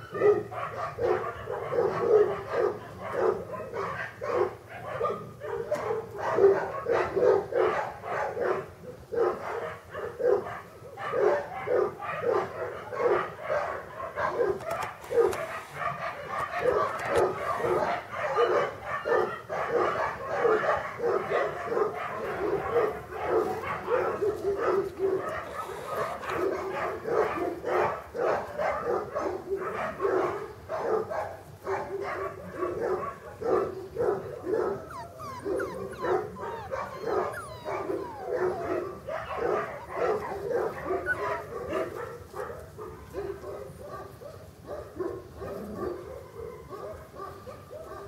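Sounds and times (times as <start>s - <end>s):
puppies yapping and whining: 0.0s - 4.0s, 14.5s - 28.4s, 34.1s - 42.4s.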